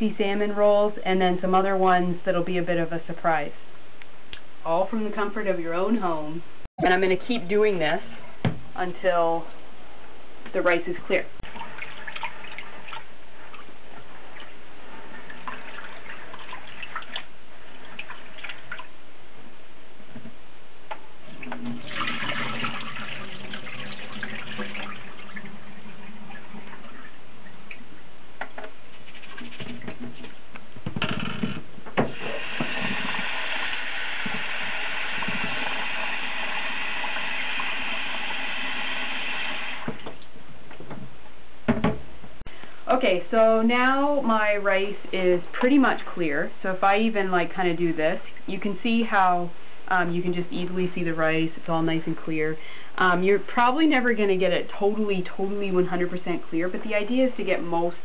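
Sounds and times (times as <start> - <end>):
kitchen tap running into bowl: 21.4 - 25.5.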